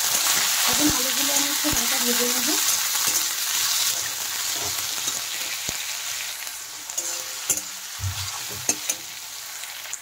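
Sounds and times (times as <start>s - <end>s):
potatoes sizzling in hot oil: 0.0s - 10.0s
metal spatula scraping pan: 6.9s - 9.1s.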